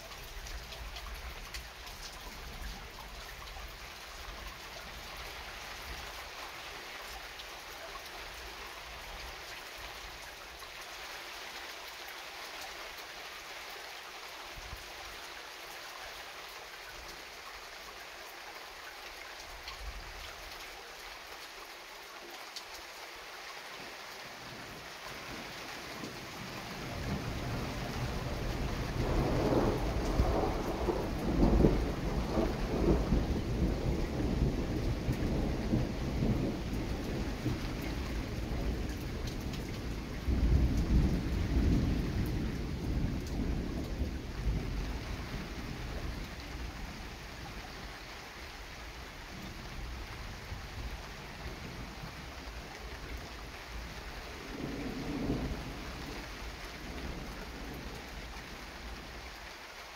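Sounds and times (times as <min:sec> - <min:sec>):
steady rain: 0:00.0 - 0:59.9
thunder rumbling: 0:26.9 - 0:46.8, 0:54.4 - 0:56.2.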